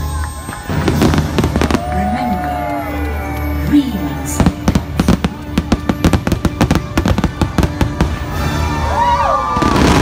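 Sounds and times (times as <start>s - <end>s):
show music: 0.0s - 10.0s
fireworks bangs: 0.3s - 2.8s, 4.2s - 8.5s, 9.5s - 10.0s.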